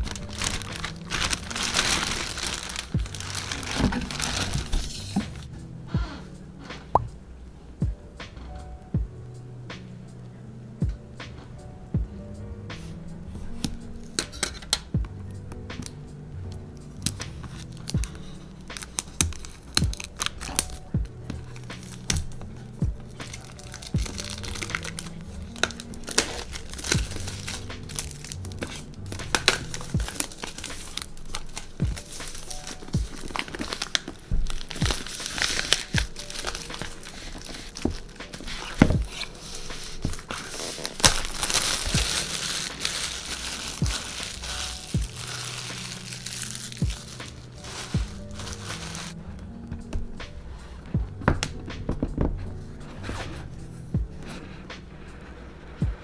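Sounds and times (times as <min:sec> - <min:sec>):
plastic wrap crinkling and tearing: 0:00.0 - 0:05.5, 0:16.9 - 0:49.2.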